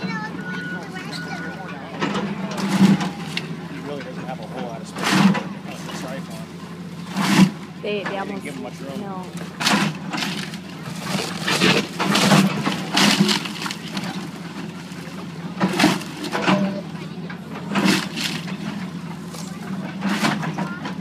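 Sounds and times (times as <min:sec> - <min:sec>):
excavator engine running: 0:00.0 - 0:21.0
wood breaking and debris falling: 0:09.4 - 0:16.5.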